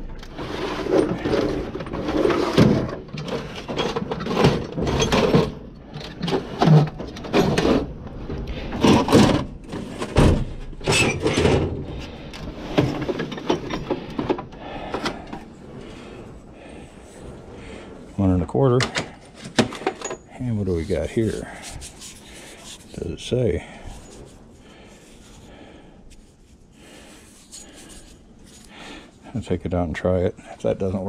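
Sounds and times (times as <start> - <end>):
metal drawer sliding: 0.0 - 23.4
metal tools clinking: 12.7 - 15.4, 18.8 - 23.0.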